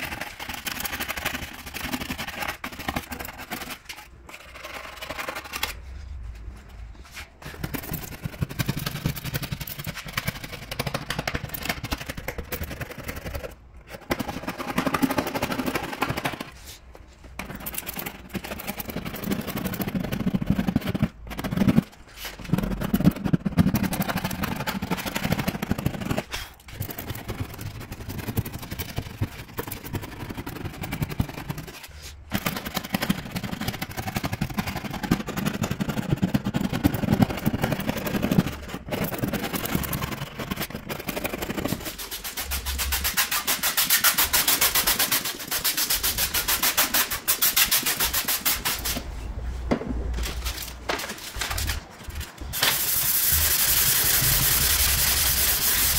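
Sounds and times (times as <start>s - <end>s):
plastic scraper scratching paint: 0.0s - 6.5s, 7.1s - 49.1s, 50.4s - 55.9s
back-and-forth scraping strokes: 41.7s - 49.6s, 52.4s - 55.9s.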